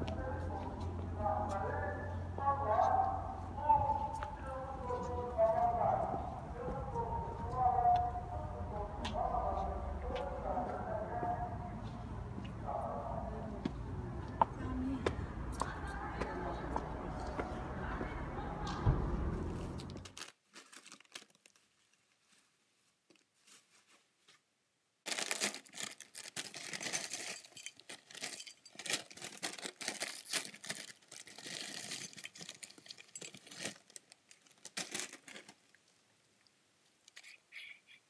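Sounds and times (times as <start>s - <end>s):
snack bags crinkling: 20.0s - 22.1s, 25.1s - 35.8s.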